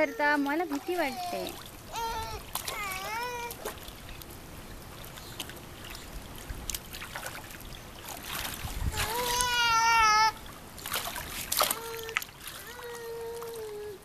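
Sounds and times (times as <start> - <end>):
pool water splashing: 0.0 - 14.0
baby crying: 1.0 - 3.7, 8.9 - 10.4.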